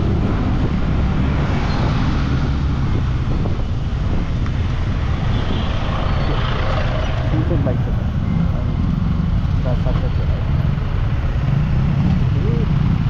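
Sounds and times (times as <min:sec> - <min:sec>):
wind on microphone: 0:00.0 - 0:09.5
vehicle rumble: 0:00.0 - 0:13.0.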